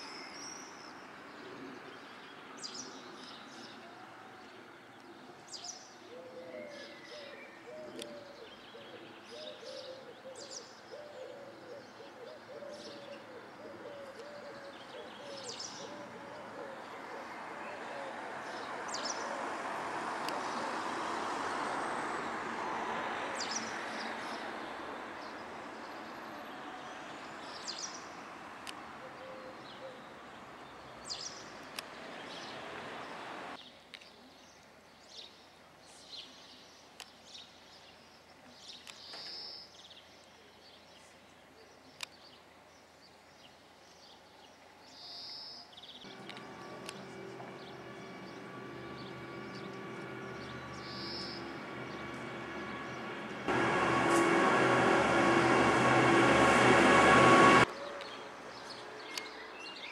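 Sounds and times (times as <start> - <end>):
steady multi-tone hum: 46.1 - 57.7
broad steady rushing noise: 46.1 - 59.0.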